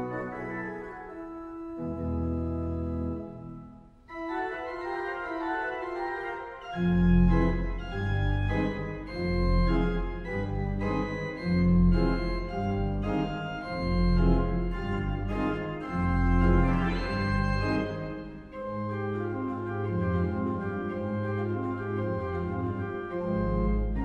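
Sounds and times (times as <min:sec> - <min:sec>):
pipe organ playing: 0:00.0 - 0:24.0.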